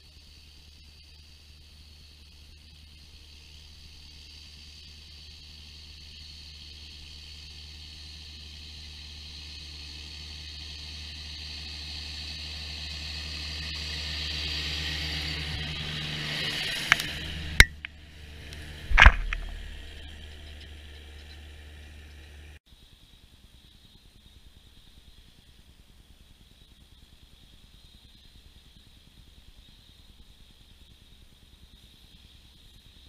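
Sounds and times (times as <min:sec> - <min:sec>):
tractor diesel engine under load: 0:01.8 - 0:22.6
sharp knocks: 0:18.9 - 0:20.0.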